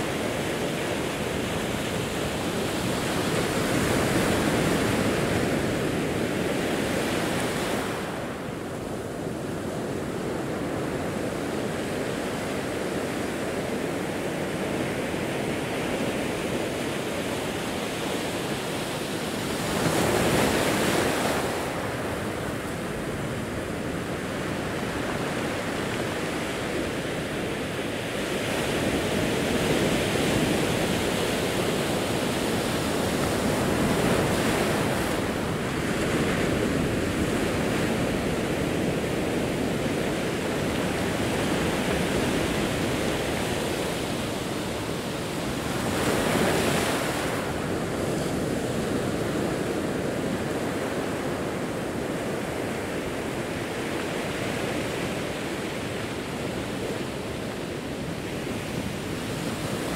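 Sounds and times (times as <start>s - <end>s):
waves breaking on rocky shore: 0.0s - 59.9s.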